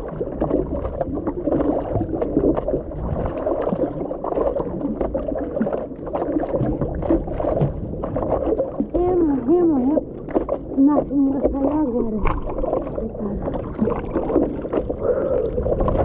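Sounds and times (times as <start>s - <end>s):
water splashing from paddling: 0.0s - 16.0s.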